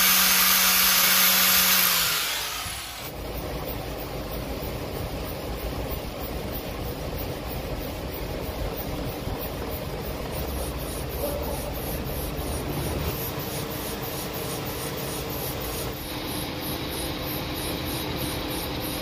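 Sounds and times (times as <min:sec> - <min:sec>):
lathe tool cutting steel: 0:00.0 - 0:03.1
metal lathe running: 0:00.0 - 0:19.0.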